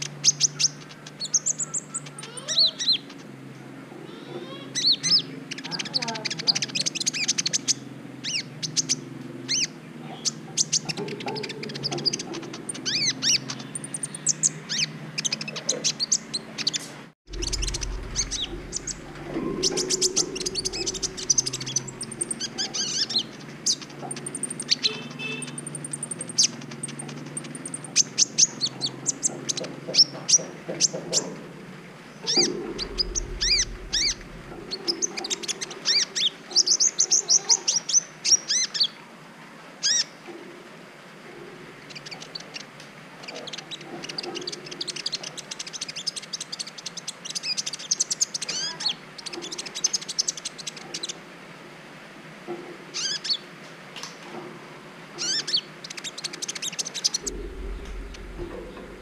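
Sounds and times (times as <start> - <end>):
sunbird singing high chirps: 4.1 - 29.3.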